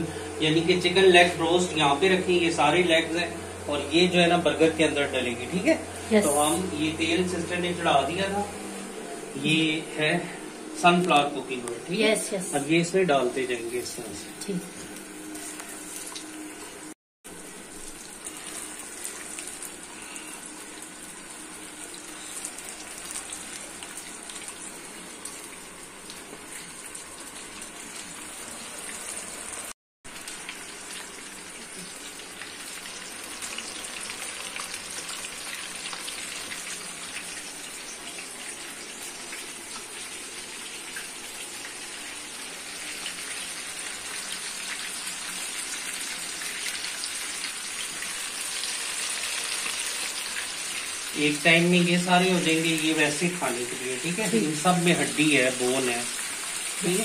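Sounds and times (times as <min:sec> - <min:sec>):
chicken deep-frying in oil: 0:12.5 - 0:57.0.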